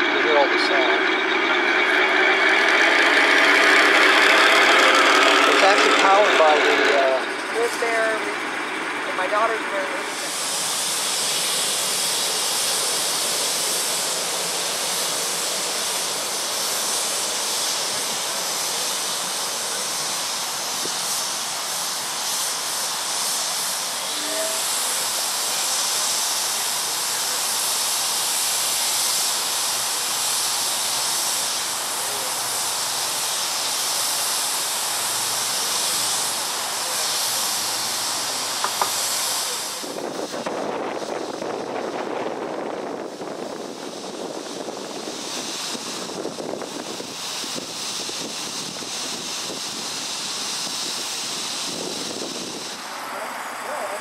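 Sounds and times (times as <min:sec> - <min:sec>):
steam hissing: 0:00.0 - 0:54.0.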